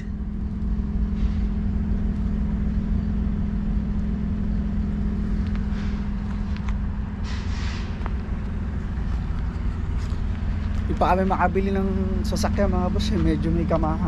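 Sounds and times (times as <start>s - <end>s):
truck engine idling: 0.0s - 14.0s
footsteps on gravel: 7.4s - 11.4s.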